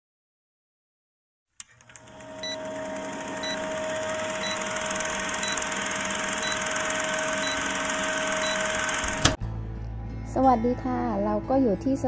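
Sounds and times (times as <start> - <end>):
film projector clattering: 1.6 - 9.4
projector hum: 1.6 - 9.4
short beeps: 6.4 - 8.8.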